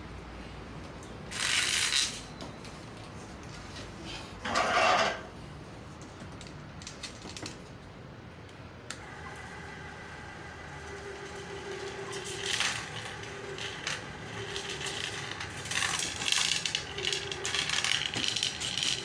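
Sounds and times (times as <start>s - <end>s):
motor humming: 9.0s - 19.0s.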